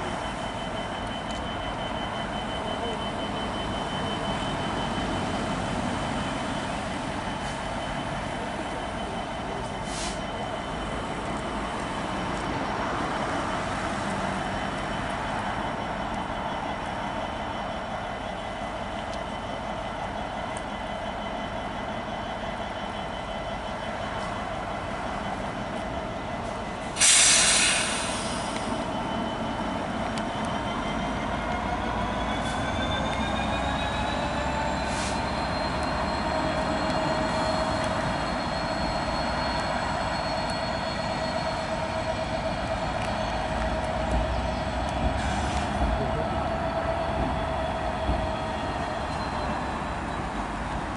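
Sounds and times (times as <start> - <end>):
diesel locomotive running: 0.0 - 50.9
thin squealing tones: 28.3 - 50.4.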